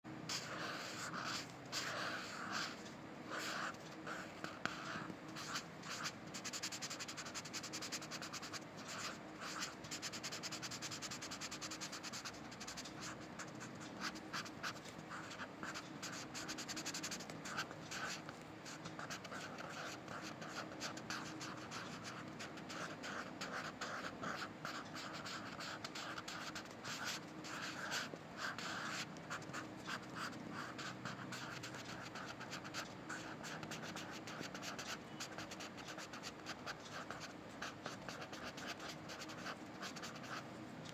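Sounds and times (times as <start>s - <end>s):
pencil scratching on paper: 0.3s - 40.5s.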